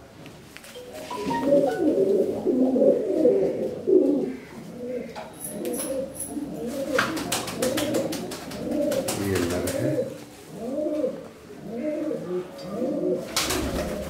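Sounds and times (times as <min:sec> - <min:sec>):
pigeons cooing: 0:01.1 - 0:14.0
pigeon wing flaps: 0:06.7 - 0:10.0, 0:13.3 - 0:14.0.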